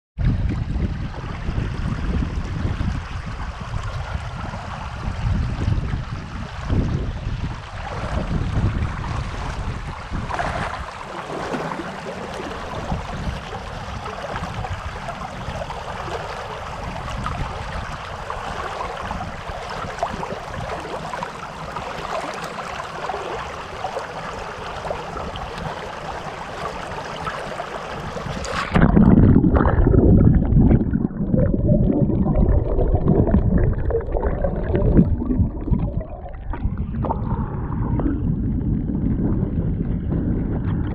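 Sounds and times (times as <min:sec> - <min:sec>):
muffled underwater churning: 0:00.2 - 0:40.9
creek water rushing over stones: 0:10.4 - 0:30.0.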